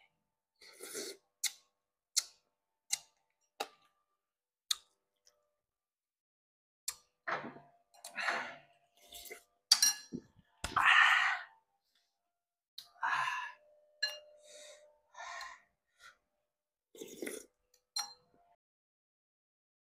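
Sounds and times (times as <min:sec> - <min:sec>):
spoon clinking porcelain bowl: 0:09.7 - 0:10.3, 0:14.0 - 0:14.4, 0:17.9 - 0:18.3.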